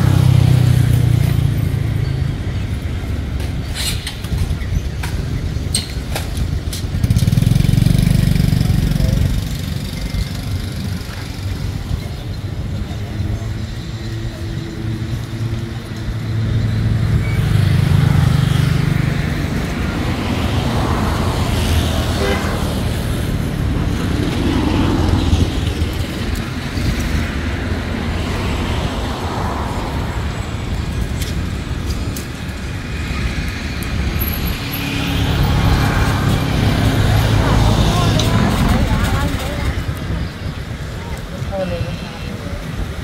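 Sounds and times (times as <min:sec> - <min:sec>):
road traffic: 0:00.0 - 0:43.0.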